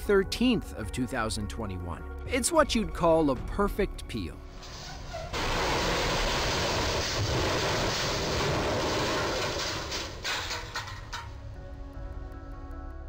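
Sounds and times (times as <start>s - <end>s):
metal scraping and tearing: 4.6s - 11.4s.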